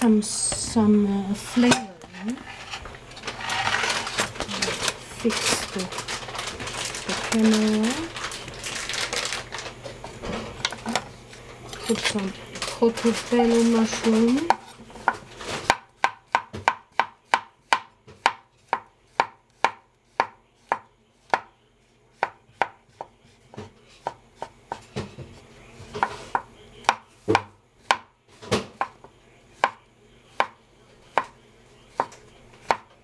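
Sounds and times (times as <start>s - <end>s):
knife chopping on cutting board: 14.4s - 21.5s, 22.2s - 25.1s, 25.9s - 29.0s, 29.6s - 29.8s, 30.4s - 32.9s.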